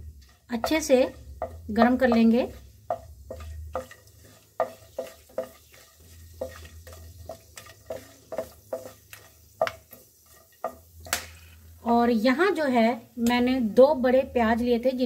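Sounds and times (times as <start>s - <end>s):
wooden spatula scraping a pan: 0.0s - 11.7s
oil sizzling: 0.0s - 15.0s.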